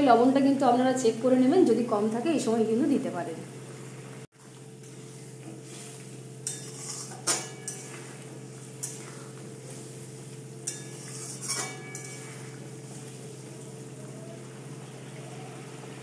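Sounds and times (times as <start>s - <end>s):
steady low hum: 0.0s - 16.0s
metal spatula scraping pan: 4.8s - 13.5s.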